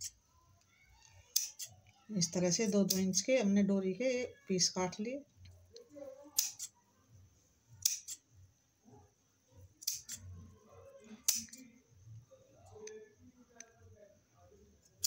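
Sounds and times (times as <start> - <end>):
scissors snipping cloth: 1.3 - 1.7, 6.4 - 6.7, 7.8 - 8.2, 9.8 - 10.3, 11.2 - 11.6.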